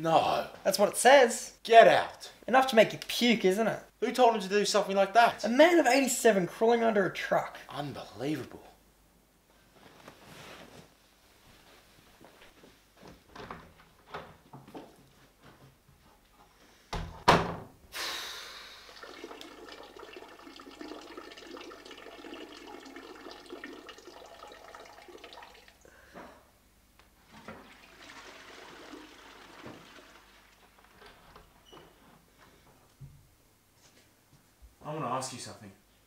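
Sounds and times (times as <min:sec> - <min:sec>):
toilet flushing: 0:18.0 - 0:25.8, 0:27.3 - 0:31.2.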